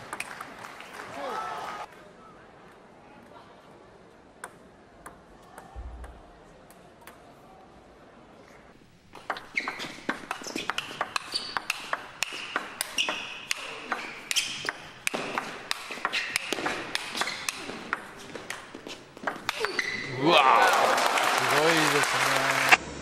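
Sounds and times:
shoes squeaking on floor: 9.1s - 20.2s.

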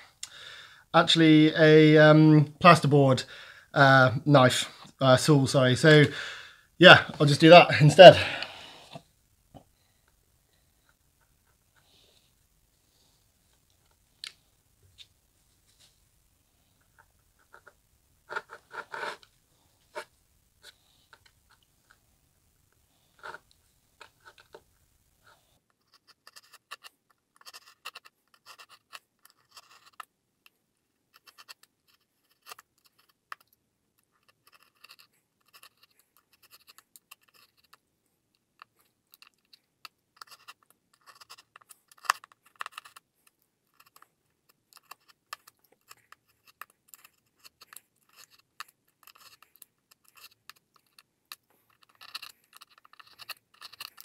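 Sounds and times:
knife scratching through plasterboard: 18.3s - 19.2s, 25.7s - 30.1s, 34.0s - 37.8s, 40.2s - 43.1s, 44.7s - 51.1s, 51.7s - 54.0s.

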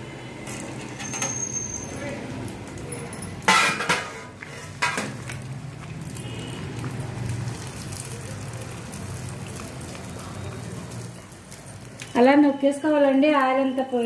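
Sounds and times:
oil sizzling in a frying pan: 3.4s - 14.0s.

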